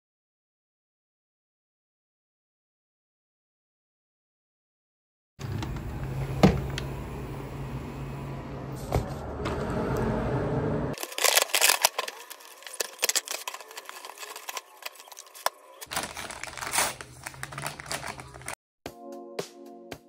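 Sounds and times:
paper bag crackling: 0:11.0 - 0:18.6
background music with steady beat: 0:18.8 - 0:20.0.

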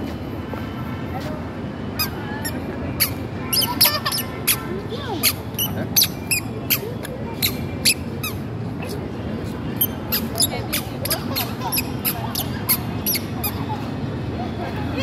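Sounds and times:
murmur of distant voices: 0:00.0 - 0:15.0
squeaky shoes squeaking: 0:02.0 - 0:09.1, 0:09.7 - 0:13.7.

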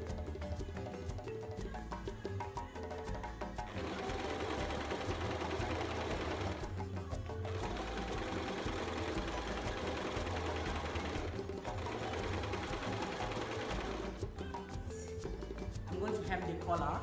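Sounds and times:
electric sewing machine running: 0:03.7 - 0:06.8, 0:07.5 - 0:14.2.

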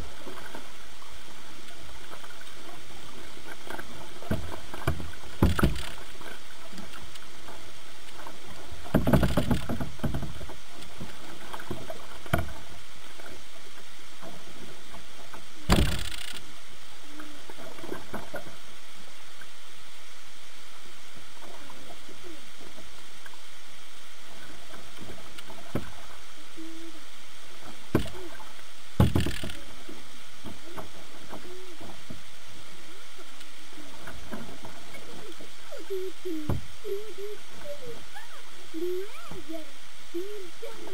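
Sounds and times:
paddle splashes: 0:00.0 - 0:16.4, 0:24.2 - 0:26.5, 0:27.4 - 0:36.8.

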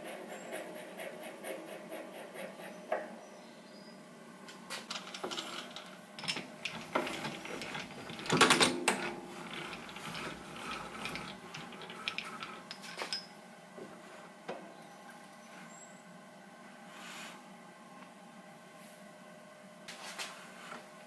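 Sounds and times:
metal clicks and knocks: 0:04.7 - 0:13.3.

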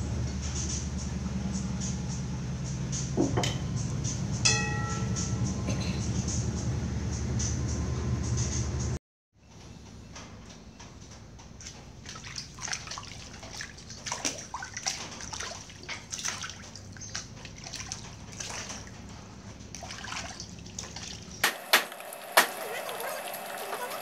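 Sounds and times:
water sloshing in a metal bowl: 0:11.6 - 0:21.4.

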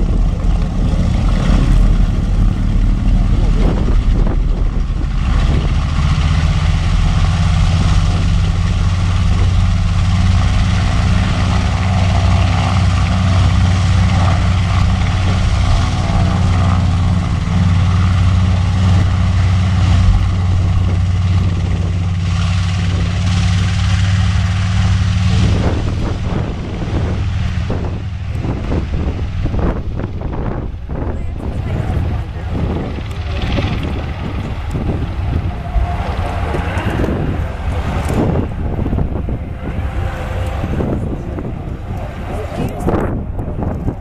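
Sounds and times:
aircraft radial engines droning: 0:00.0 - 0:44.0.

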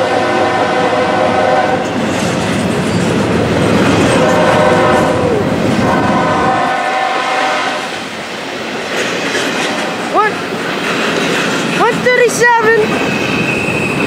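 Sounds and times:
long steady tones: 0:00.0 - 0:02.1, 0:03.2 - 0:08.7
train wheels rumbling over rails: 0:00.0 - 0:14.0.

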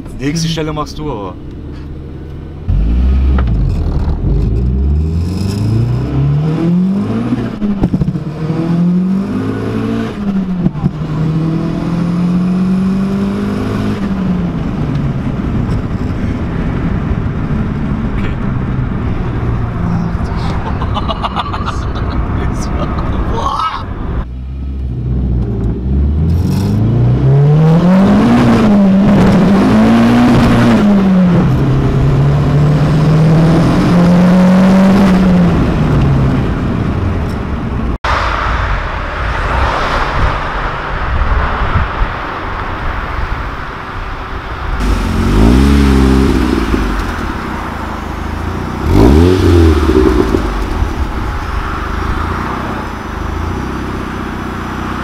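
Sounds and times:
turbocharged car engine accelerating: 0:00.5 - 0:23.0, 0:24.2 - 0:38.1, 0:44.8 - 0:55.0
engine revving: 0:02.6 - 0:14.4, 0:24.5 - 0:36.8, 0:44.8 - 0:55.0.

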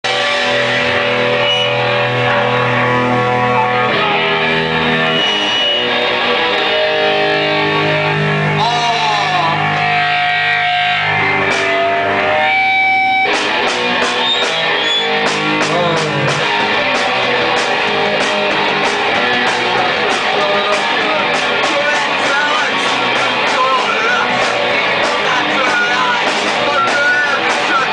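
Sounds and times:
distorted electric guitar chords: 0:00.0 - 0:27.9
steady drum beat: 0:11.2 - 0:27.9.

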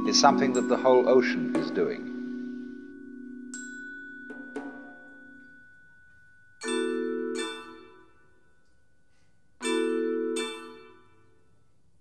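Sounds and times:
marimba and metal keyboard chords: 0:00.0 - 0:08.1, 0:09.6 - 0:11.1.

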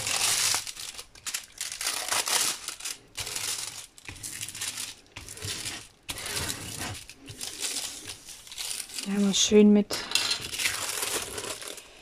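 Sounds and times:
plastic film crinkling: 0:00.0 - 0:09.6, 0:10.4 - 0:12.0.

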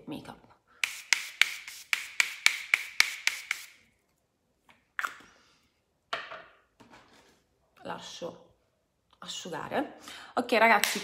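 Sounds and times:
spray bottle hissing sprays: 0:00.8 - 0:03.8.

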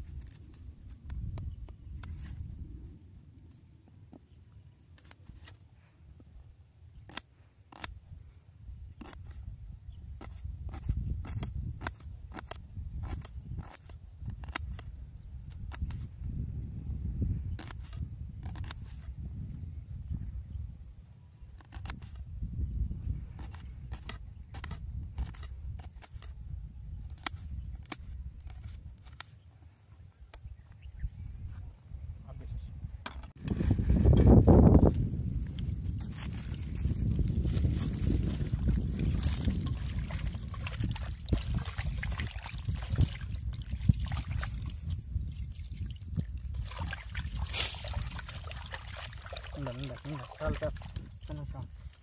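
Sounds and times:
splashes and knocks against pot: 0:46.6 - 0:51.1.

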